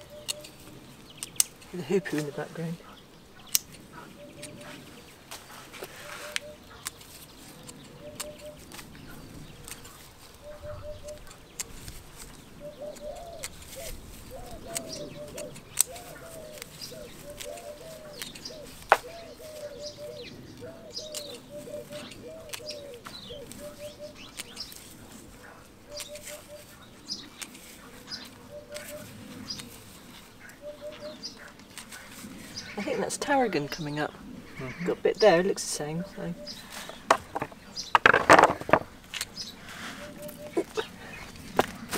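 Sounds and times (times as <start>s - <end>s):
small birds chirping: 0.0s - 41.9s
sharp clicks: 0.2s - 2.2s, 3.5s - 3.8s, 14.4s - 16.7s
bird calling low notes: 12.6s - 24.7s, 25.8s - 29.6s, 30.3s - 41.9s.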